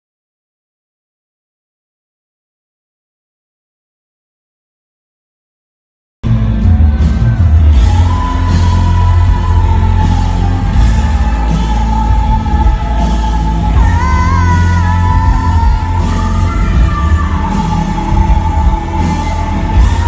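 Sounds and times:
loud bass-heavy rock band: 6.2s - 20.0s.

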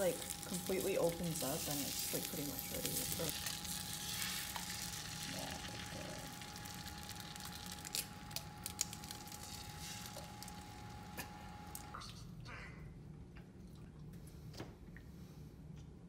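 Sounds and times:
eggs sizzling on griddle: 0.0s - 11.3s.

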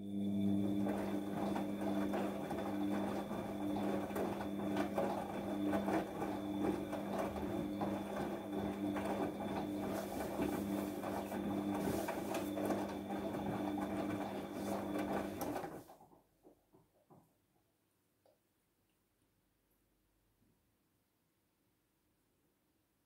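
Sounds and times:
washing machine motor humming: 0.0s - 16.1s
wet laundry tumbling: 0.1s - 16.8s.

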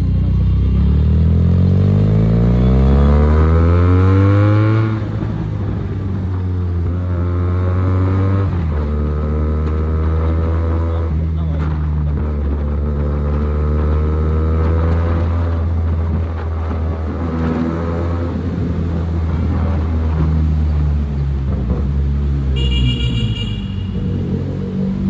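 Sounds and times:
motorcycle engine running: 21.1s - 25.0s
motorcycle horn: 22.6s - 24.2s.

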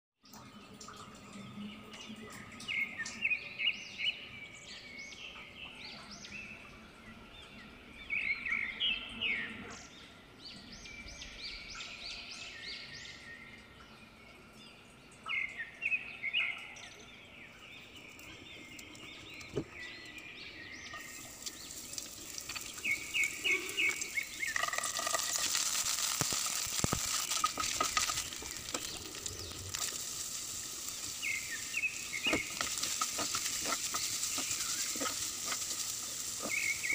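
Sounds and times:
birds chirping: 15.2s - 36.9s
onion and garlic frying in oil: 20.9s - 36.9s.

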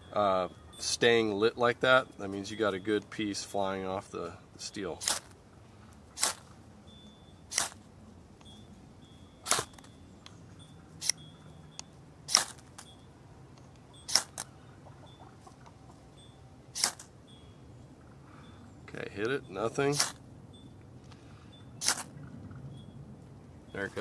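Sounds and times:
knife scraping fire steel rod: 6.2s - 6.5s, 7.5s - 7.8s, 14.1s - 14.4s, 16.8s - 17.1s, 20.0s - 20.2s.

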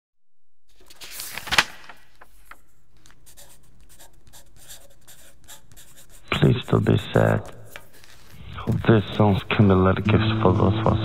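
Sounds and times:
soft scratching and rustling: 2.2s - 9.4s.

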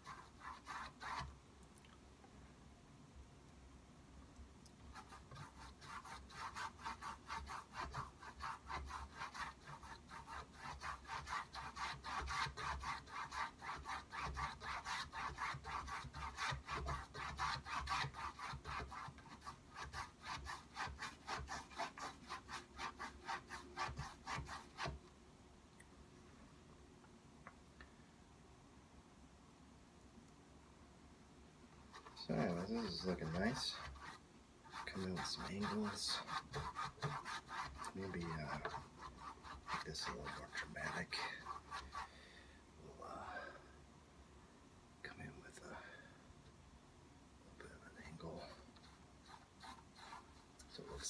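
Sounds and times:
paintbrush stroking canvas: 0.0s - 1.3s, 4.9s - 25.0s, 31.9s - 42.1s, 47.6s - 51.0s.

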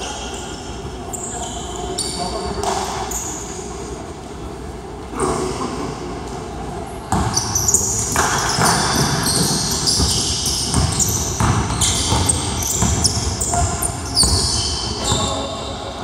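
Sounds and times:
sneakers squeaking: 0.0s - 3.9s, 7.0s - 16.0s
basketball bouncing on hardwood: 8.2s - 14.4s.

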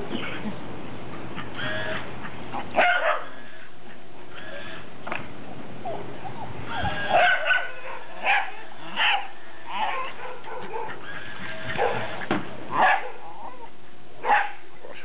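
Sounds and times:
small dog yapping: 2.7s - 3.6s, 6.7s - 13.2s.

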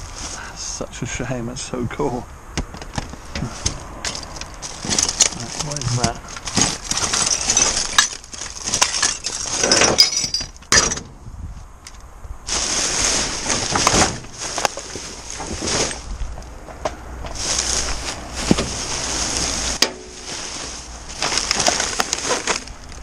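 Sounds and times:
plastic bags rustling: 3.1s - 10.5s, 12.5s - 16.4s, 17.3s - 23.0s
items knocking and clinking: 4.0s - 11.2s.

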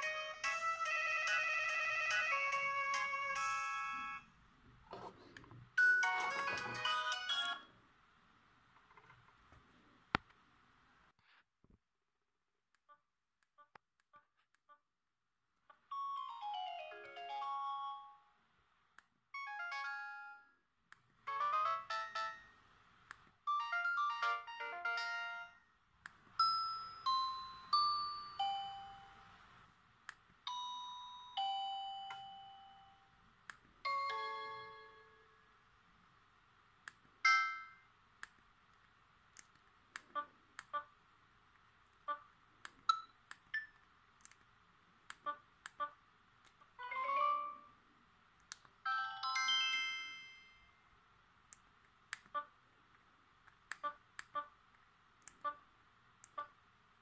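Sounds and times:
phone ringtone chime: 5.8s - 7.7s, 15.9s - 18.3s, 19.4s - 20.5s, 21.3s - 22.5s, 23.5s - 25.6s, 26.4s - 29.4s, 30.5s - 33.0s, 33.9s - 35.3s, 48.9s - 50.8s.

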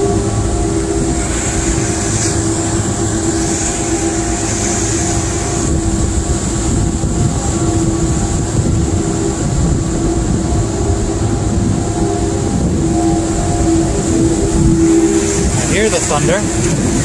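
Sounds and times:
diesel engines droning: 0.0s - 17.0s.

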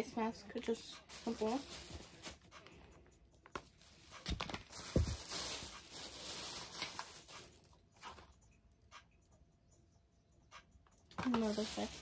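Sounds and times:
plastic packets rustling: 0.6s - 2.8s, 3.4s - 8.3s, 11.1s - 12.0s.

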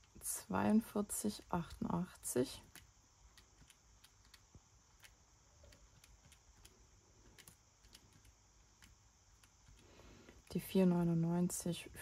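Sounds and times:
calculator keys clicking: 2.6s - 9.9s.

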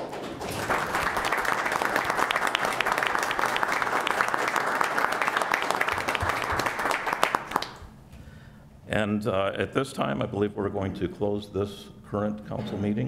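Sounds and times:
small audience applauding: 0.0s - 7.9s.

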